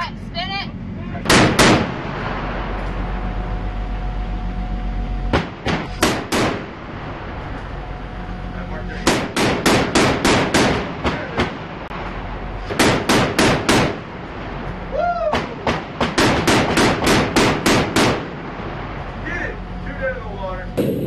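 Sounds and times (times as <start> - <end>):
automatic gun firing bursts: 9.1 - 10.9, 12.8 - 14.0, 16.0 - 18.3.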